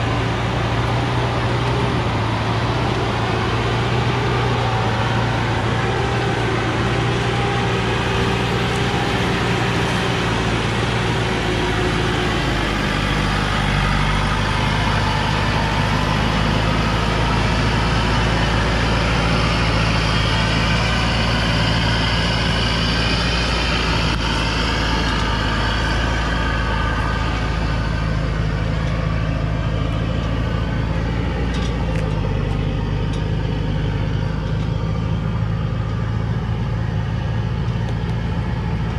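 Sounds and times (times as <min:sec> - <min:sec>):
truck diesel engine: 0:00.0 - 0:38.9.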